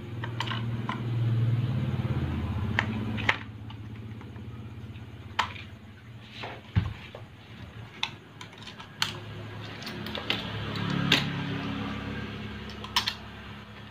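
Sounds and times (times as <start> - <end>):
metal parts clicking and knocking: 0.2 - 1.1, 5.3 - 5.8, 7.8 - 11.6, 12.6 - 13.9.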